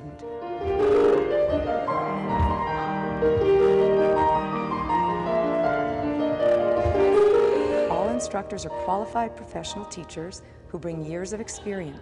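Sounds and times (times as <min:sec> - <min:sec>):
piano music: 0:00.0 - 0:10.4.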